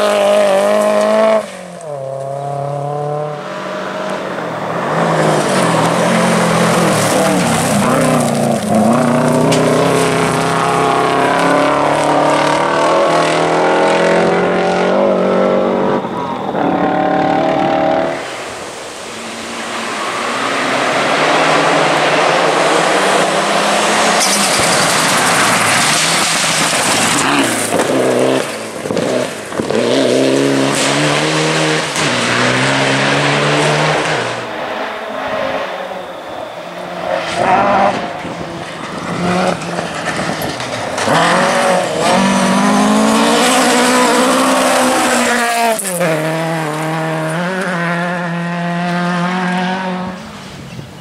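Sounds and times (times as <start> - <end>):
rally car engines revving: 0.0 - 51.0
tyres crunching on gravel: 4.8 - 10.6.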